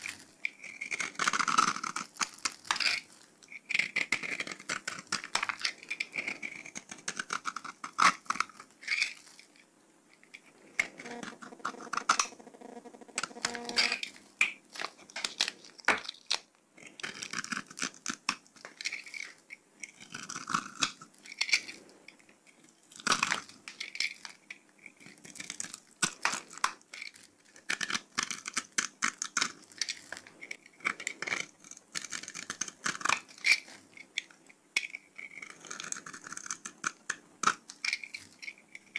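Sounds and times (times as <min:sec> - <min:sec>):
knife cutting soap: 0:00.0 - 0:09.5, 0:22.9 - 0:38.9.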